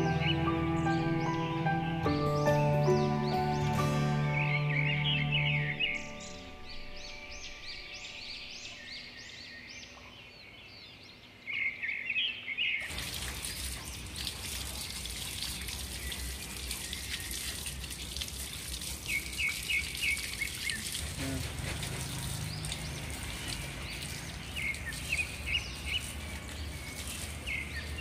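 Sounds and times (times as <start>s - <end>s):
birds chirping: 0.0s - 28.0s
hose water splashing on pebbles: 12.8s - 28.0s.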